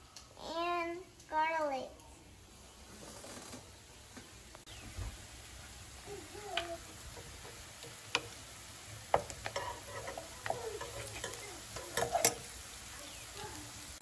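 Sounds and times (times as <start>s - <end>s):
onion sizzling in oil: 3.8s - 14.0s
utensils knocking against pan: 9.1s - 12.5s
wooden spatula scraping pan: 9.1s - 12.5s.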